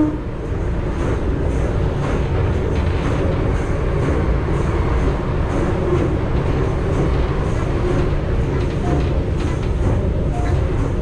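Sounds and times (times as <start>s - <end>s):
train wheels rumbling on rails: 0.0s - 11.0s.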